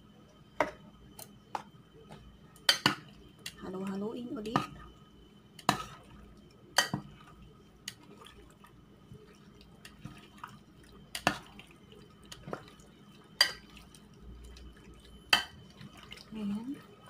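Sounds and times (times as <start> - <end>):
tongs clinking against glass bowl: 13.4 - 13.6.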